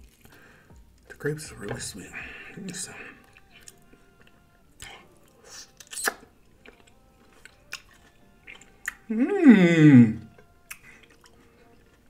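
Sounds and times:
person chewing wetly: 3.2 - 9.1, 10.1 - 12.0
mouth clicks: 5.8 - 6.3, 10.7 - 11.3.

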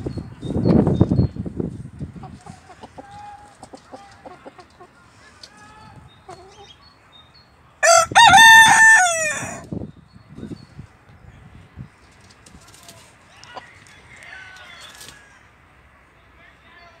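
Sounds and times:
hens clucking softly: 2.0 - 6.8
rooster crowing: 7.8 - 9.7, 13.6 - 15.5.

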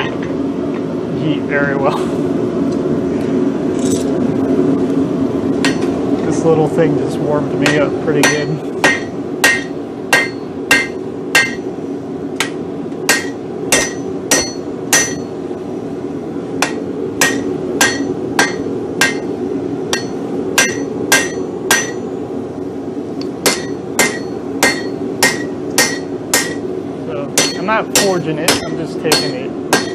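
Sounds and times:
hammer striking steel on anvil: 5.6 - 5.9, 7.6 - 11.7, 12.4 - 15.3, 16.6 - 19.3, 19.9 - 22.1, 23.4 - 26.6, 27.4 - 29.9.

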